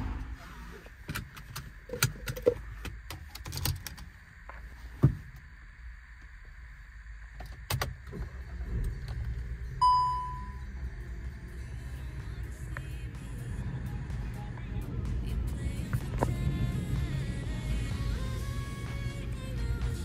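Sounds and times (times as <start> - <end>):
low engine rumble: 0.0 - 3.3, 4.0 - 20.0
bell-like chime: 9.8 - 10.7.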